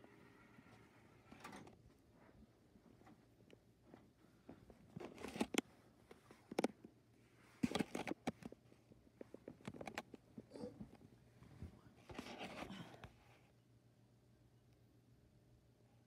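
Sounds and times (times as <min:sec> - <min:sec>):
phone handling rustling and clicking: 0:04.9 - 0:06.9, 0:07.6 - 0:08.6.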